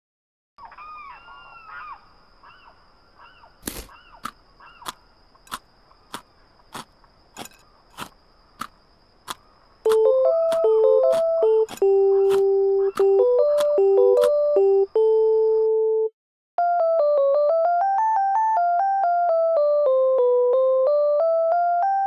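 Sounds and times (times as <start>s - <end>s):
small birds chirping: 0.6s - 14.8s
sharp clicks: 3.6s - 14.5s.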